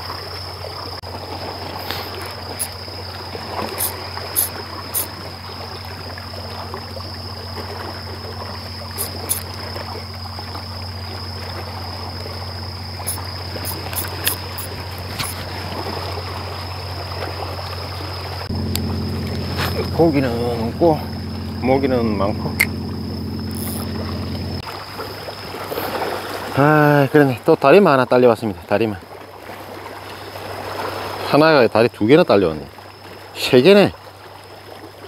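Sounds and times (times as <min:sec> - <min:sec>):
small waves lapping on rocks: 0:00.0 - 0:18.5, 0:24.6 - 0:35.0
high insect trill: 0:00.0 - 0:34.8
low steady hum: 0:01.4 - 0:25.8
sharp clicks: 0:09.0 - 0:09.5, 0:13.1 - 0:15.4, 0:22.5 - 0:22.9.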